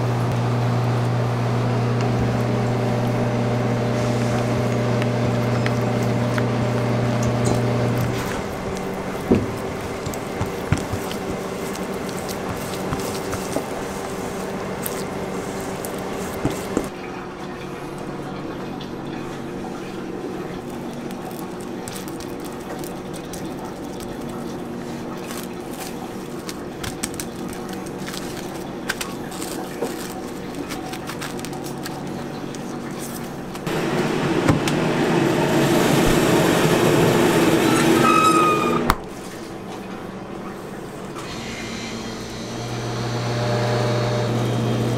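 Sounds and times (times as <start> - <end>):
steady hum: 0.0 - 37.8
plastic cling film crinkling: 3.9 - 16.9, 20.3 - 33.7.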